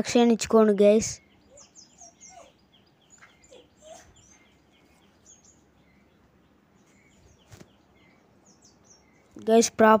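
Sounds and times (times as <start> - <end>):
bird chirps and whistles: 1.2 - 4.6.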